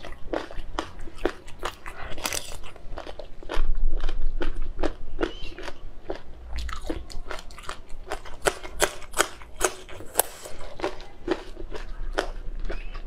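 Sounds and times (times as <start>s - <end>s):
person chewing crunchy food: 0.0s - 13.0s.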